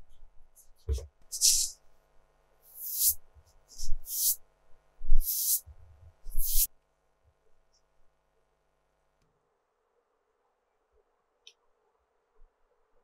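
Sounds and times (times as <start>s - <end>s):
brush swishing across paper: 1.3s - 1.7s, 2.7s - 4.4s, 6.3s - 6.7s.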